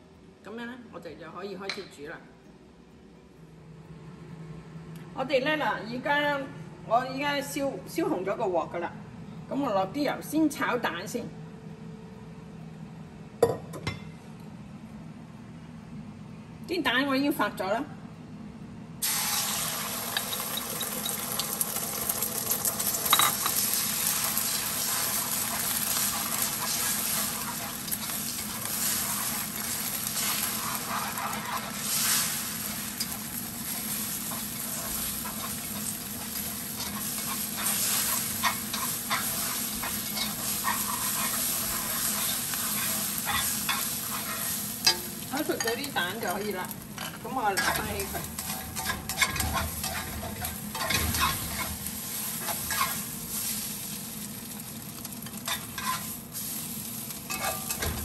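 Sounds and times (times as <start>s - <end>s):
eggs sizzling in a wok: 19.0s - 58.0s
chopsticks scraping metal pan: 24.8s - 31.8s, 33.0s - 45.9s.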